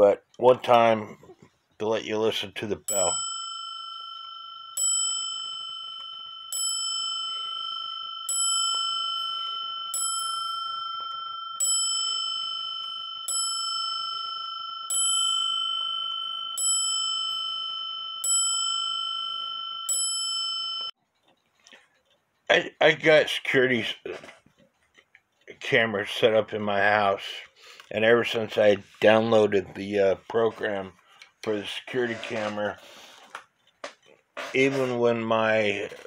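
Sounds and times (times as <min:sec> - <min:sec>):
clock striking a dome bell: 0:02.9 - 0:21.0.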